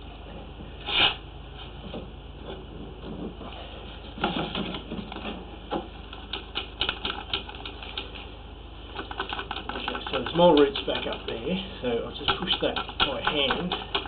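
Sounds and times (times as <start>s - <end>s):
low steady hum: 0.0s - 14.0s
drain hose clicking and rattling: 6.1s - 8.2s, 8.9s - 11.4s, 12.2s - 14.0s.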